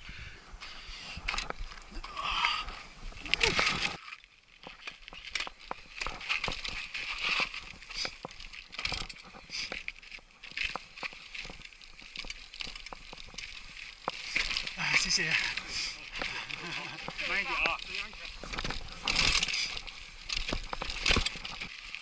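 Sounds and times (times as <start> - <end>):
bike tyres crunching over grit: 3.1 - 22.0
bike rattling over bumps: 4.6 - 22.0.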